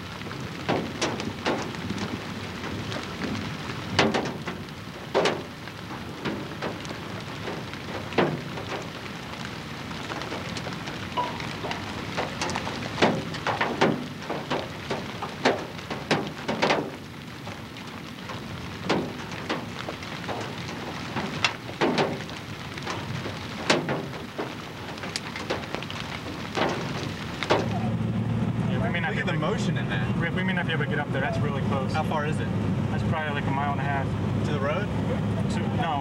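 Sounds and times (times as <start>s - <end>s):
rain falling: 0.0s - 36.0s
raindrops tapping near microphone: 0.0s - 36.0s.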